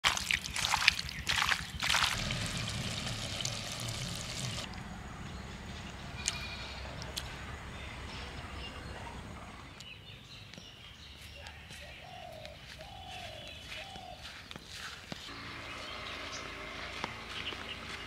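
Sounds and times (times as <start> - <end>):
wet squelching of hand mixing: 0.0 - 4.7.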